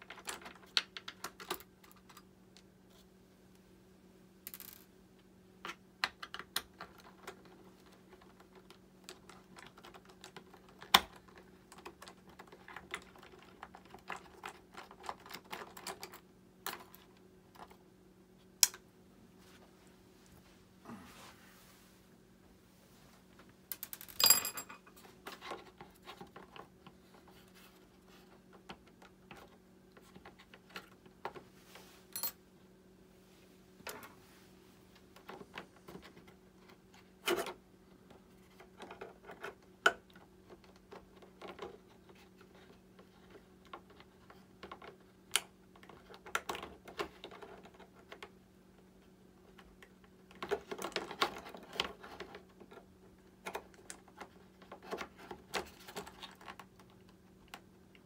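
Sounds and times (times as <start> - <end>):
small parts clicking and tapping: 0.0 - 2.7, 5.6 - 17.8, 23.7 - 27.4
steady low hum: 16.1 - 38.9.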